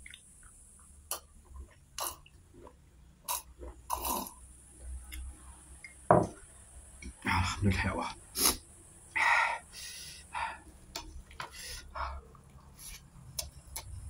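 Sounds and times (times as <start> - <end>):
person gulping a drink: 0.0 - 4.5.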